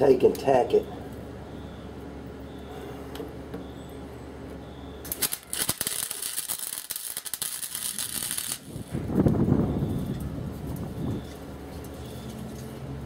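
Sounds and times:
steady low hum: 0:00.0 - 0:13.0
welder arcing crackle: 0:05.0 - 0:09.4.

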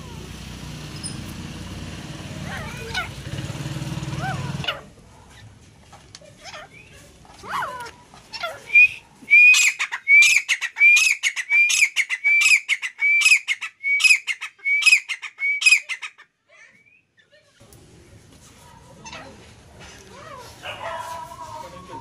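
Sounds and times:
francolin calling: 0:08.7 - 0:16.1.

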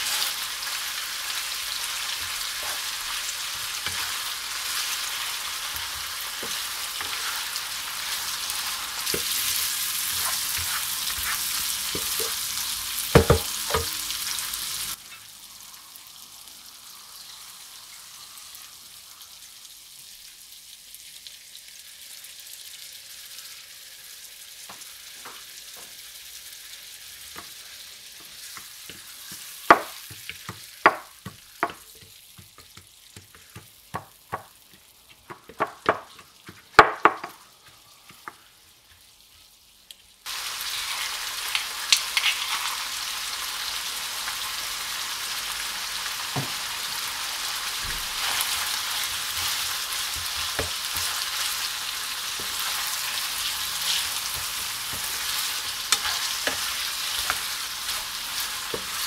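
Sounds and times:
chicken sizzling in oil: 0:00.0 - 0:59.0
wooden spoon stirring in pan: 0:01.8 - 0:14.0, 0:27.4 - 0:39.1, 0:48.0 - 0:59.0
pestle knocking in stone mortar: 0:13.2 - 0:13.9.

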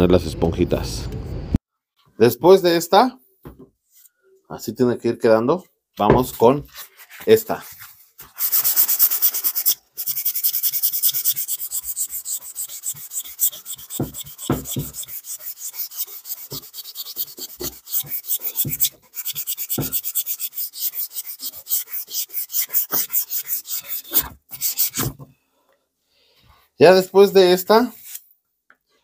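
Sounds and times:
sandpaper rubbing on board: 0:07.0 - 0:25.1, 0:27.8 - 0:28.2.

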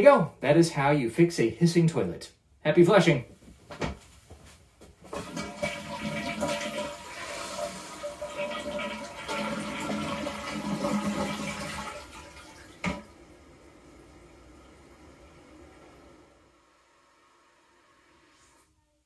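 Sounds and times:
toilet flushing: 0:05.1 - 0:18.8.

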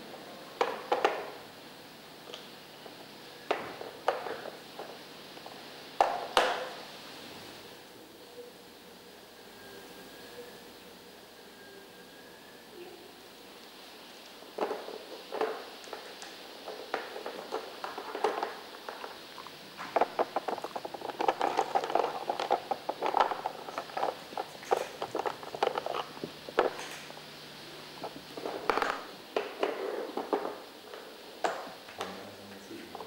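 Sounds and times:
plastic puzzle pieces clattering: 0:14.6 - 0:27.2.

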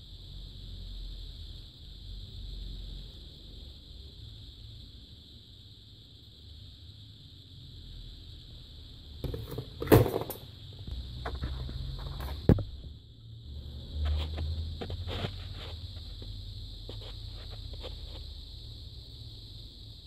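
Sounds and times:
steady high hiss: 0:00.0 - 0:20.0.

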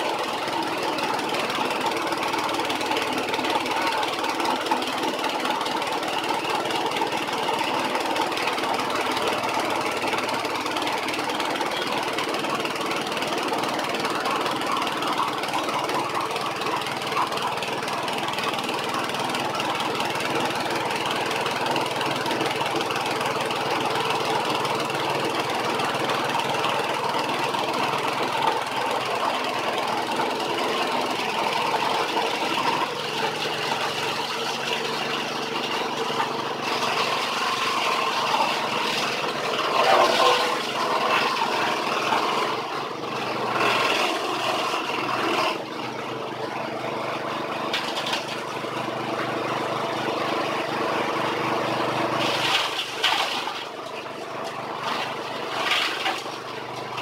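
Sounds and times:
small petrol engine running: 0:00.0 - 0:57.0
blades cutting grass: 0:36.6 - 0:42.5.

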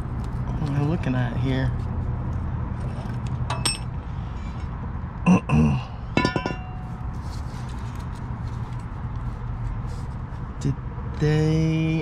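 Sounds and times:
metal plate clinking and knocking: 0:06.2 - 0:07.0.

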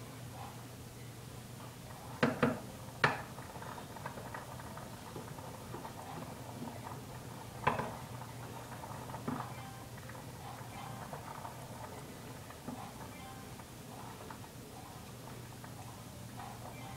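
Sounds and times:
spoon knocking against pot: 0:02.2 - 0:03.3, 0:07.6 - 0:07.9.

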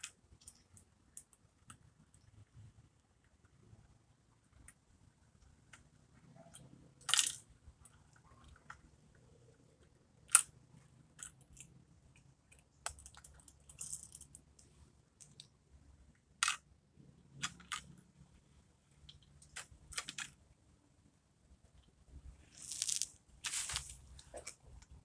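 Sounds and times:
plastic toys clicking on concrete: 0:06.5 - 0:08.9, 0:10.2 - 0:15.5, 0:16.4 - 0:16.7, 0:18.9 - 0:20.4.

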